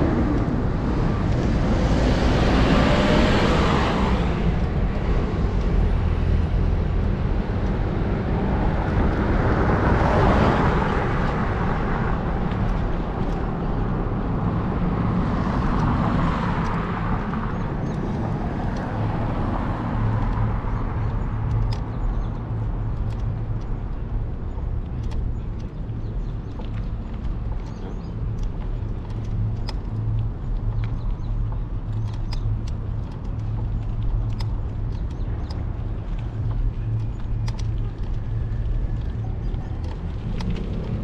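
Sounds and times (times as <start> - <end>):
cars passing: 0.0 - 41.0
wind rumble on microphone: 0.0 - 41.0.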